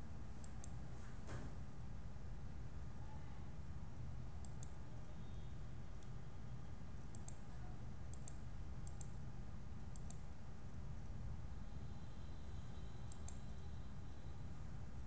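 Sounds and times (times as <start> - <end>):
steady low hum: 0.0 - 15.0
computer mouse clicking: 0.4 - 0.8, 4.4 - 4.8, 7.1 - 7.5, 8.1 - 9.2, 9.9 - 10.3, 13.1 - 13.4.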